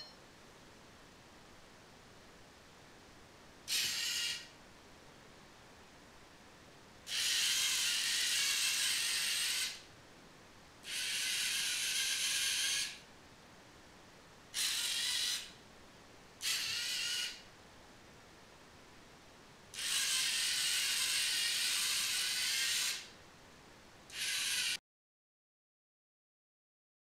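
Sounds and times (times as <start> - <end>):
servo motors whirring: 7.1 - 9.8, 10.9 - 13.0, 19.8 - 23.1, 24.1 - 24.8.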